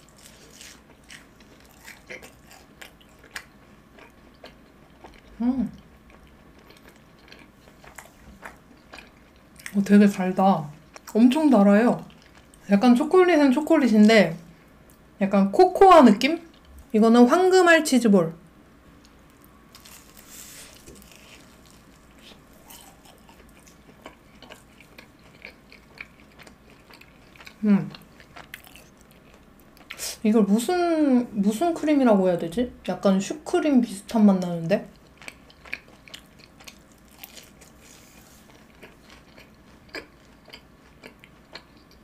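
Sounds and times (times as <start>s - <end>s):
faint chewing: 0.0s - 11.2s, 11.9s - 12.6s, 19.0s - 30.2s, 34.9s - 42.0s.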